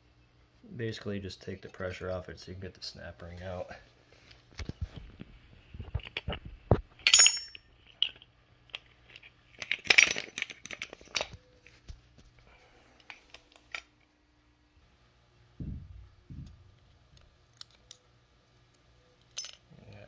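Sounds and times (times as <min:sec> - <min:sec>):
metal clinks and clicks: 0:07.0 - 0:08.2, 0:19.2 - 0:19.7.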